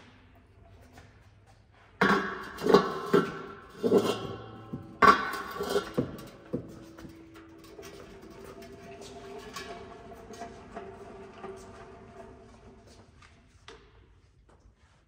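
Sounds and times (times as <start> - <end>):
metal drain pan clattering: 2.0 - 11.0.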